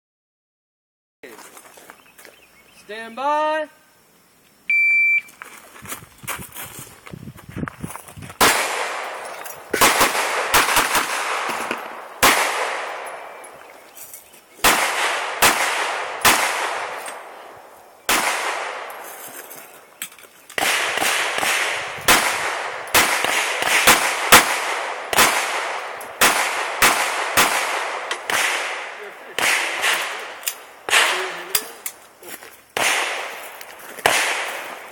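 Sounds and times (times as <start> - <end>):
handgun shots echoing: 8.4 - 13.5, 14.6 - 17.4, 18.1 - 19.0, 20.6 - 32.0, 32.8 - 34.9.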